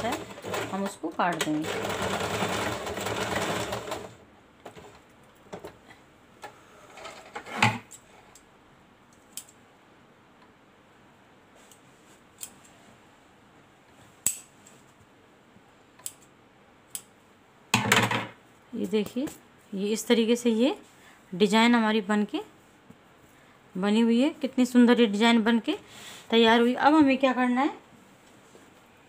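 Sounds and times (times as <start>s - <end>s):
sewing machine running: 0.0s - 4.2s.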